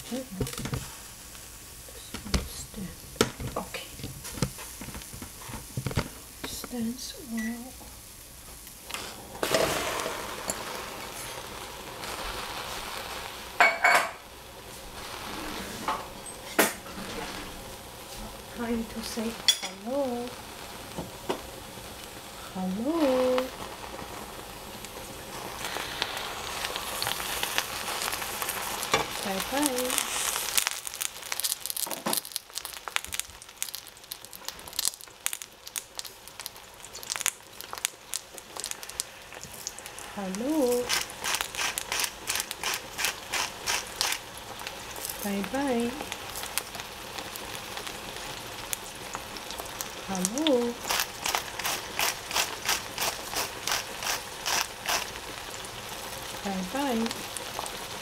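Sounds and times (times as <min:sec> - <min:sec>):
vegetables frying in a pot: 0:00.0 - 0:58.0
vegetable chunks tumbling into pot: 0:00.3 - 0:01.0, 0:02.1 - 0:06.6, 0:08.9 - 0:11.4
metal bowl clinking on pot: 0:13.6 - 0:14.2.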